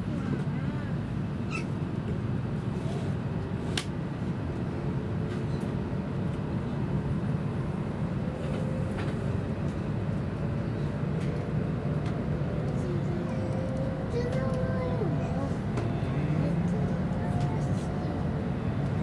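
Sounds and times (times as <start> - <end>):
train wheels rumbling on rails: 5.2 - 19.0.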